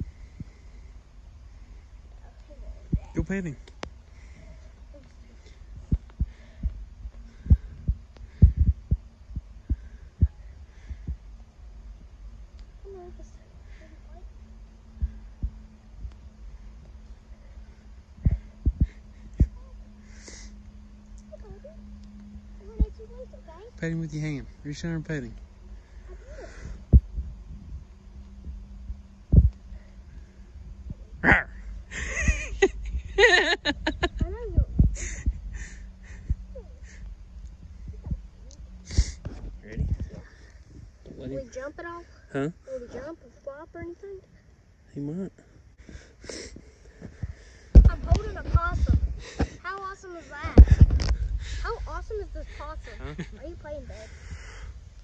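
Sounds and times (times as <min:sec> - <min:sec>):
steady low rumble: 0:00.0 - 0:55.0
dull thumps: 0:47.1 - 0:49.6.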